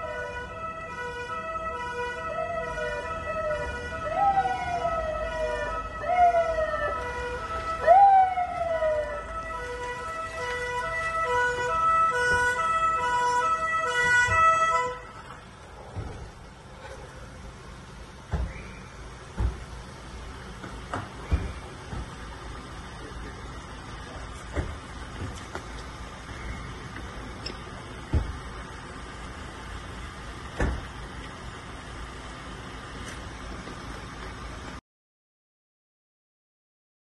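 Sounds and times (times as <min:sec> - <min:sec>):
siren sweeping down in pitch: 0:00.0 - 0:15.0
two-tone hi-lo siren: 0:00.0 - 0:15.2.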